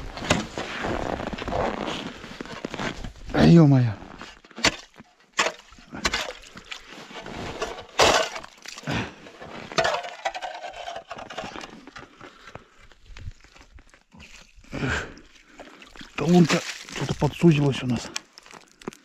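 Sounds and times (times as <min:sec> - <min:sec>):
ice crunching and clinking: 0:04.0 - 0:14.7, 0:15.4 - 0:19.0
shovel scraping in ice: 0:05.4 - 0:08.5.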